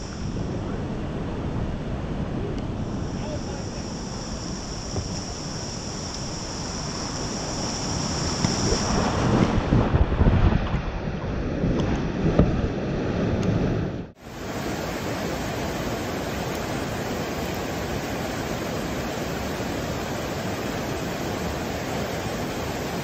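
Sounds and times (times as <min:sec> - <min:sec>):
creek pouring over a ledge: 0:14.2 - 0:23.0
rushing whitewater: 0:14.2 - 0:23.0.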